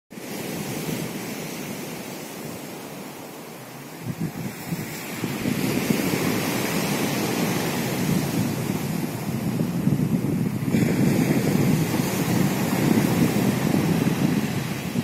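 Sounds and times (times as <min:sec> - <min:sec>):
wind buffeting microphone: 0:00.2 - 0:15.0
surf breaking on pebble beach: 0:03.9 - 0:15.0.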